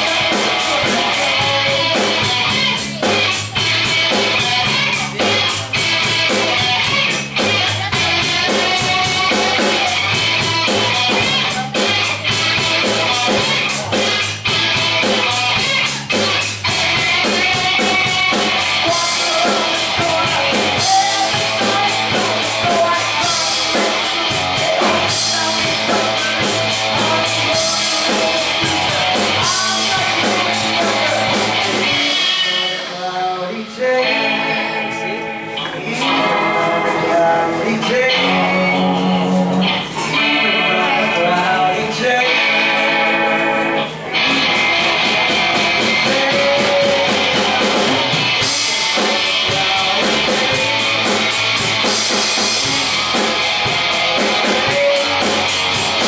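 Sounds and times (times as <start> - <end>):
bass guitar: 0.0 - 56.0
electric guitar strumming: 0.0 - 56.0
drum kit hits: 44.2 - 56.0.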